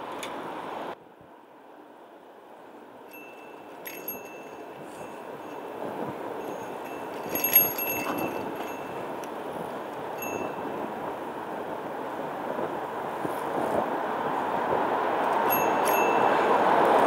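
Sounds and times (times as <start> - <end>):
wind and road noise: 0.0 - 17.0
bicycle bell jingling: 3.1 - 11.4, 15.4 - 17.0.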